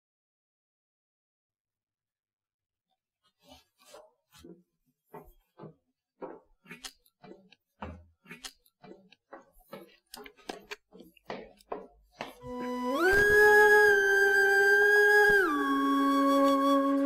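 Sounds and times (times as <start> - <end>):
footsteps on a hard floor: 4.4 - 8.1, 8.8 - 13.0.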